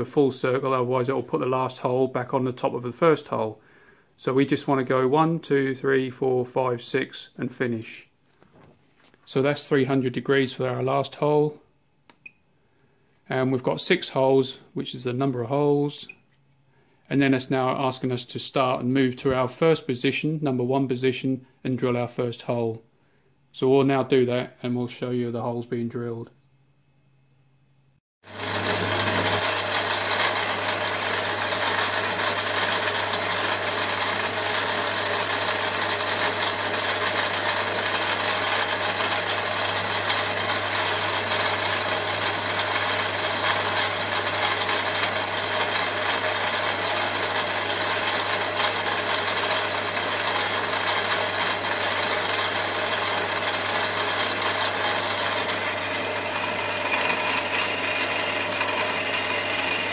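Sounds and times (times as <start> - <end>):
drill cutting into metal: 28.3 - 59.9
milling machine motor hum: 28.3 - 59.9.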